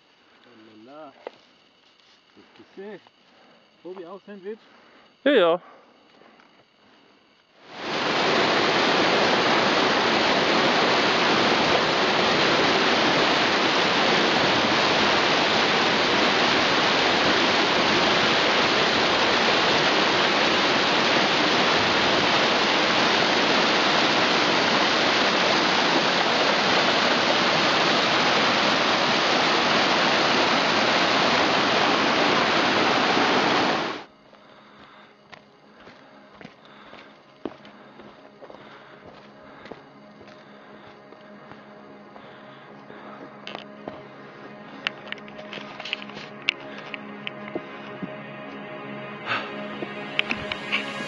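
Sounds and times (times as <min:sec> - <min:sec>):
waterfall rushing: 0:07.7 - 0:34.0, 0:49.2 - 0:51.0.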